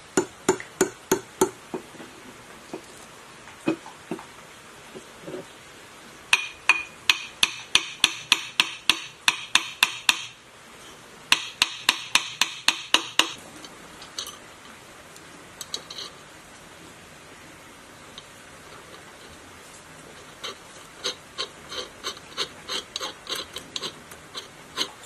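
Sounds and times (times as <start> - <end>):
hammer striking metal: 6.3 - 10.4, 11.3 - 13.4.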